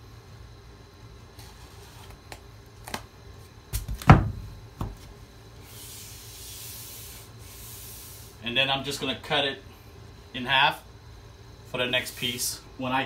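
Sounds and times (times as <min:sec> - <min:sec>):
hand rubbing tape onto metal: 0:05.6 - 0:08.4.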